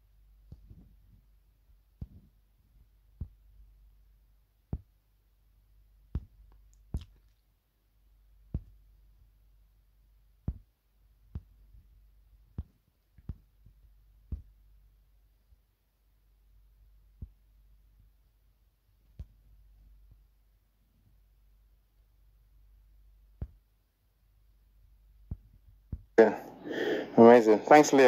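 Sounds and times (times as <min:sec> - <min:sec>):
faint low hum: 0:00.0 - 0:28.0
fingertips tapping touchscreen: 0:06.0 - 0:07.3, 0:10.4 - 0:14.7, 0:23.3 - 0:23.7.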